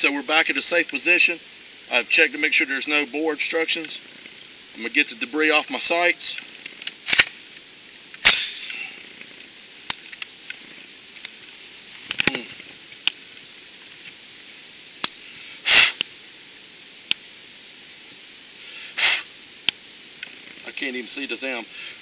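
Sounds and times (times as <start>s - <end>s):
rifle handling clicks and taps: 6.6s - 7.7s, 9.9s - 10.6s
hissing puffs of breath: 8.2s - 9.2s, 15.1s - 16.3s, 18.4s - 19.5s, 21.7s - 22.0s.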